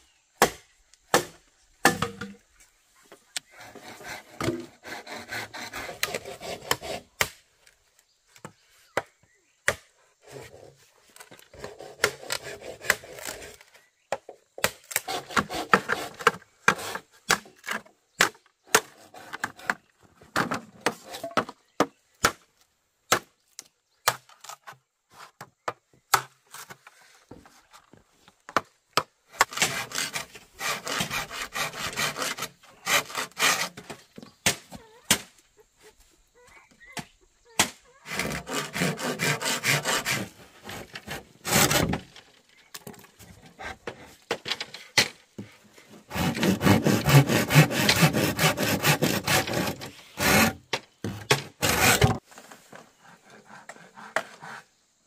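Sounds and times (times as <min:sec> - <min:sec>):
sharp knocks and chops on wood: 0:00.4 - 0:02.4, 0:04.3 - 0:07.4, 0:08.4 - 0:09.9, 0:14.1 - 0:19.8, 0:20.4 - 0:22.5, 0:23.1 - 0:24.4, 0:28.5 - 0:35.3.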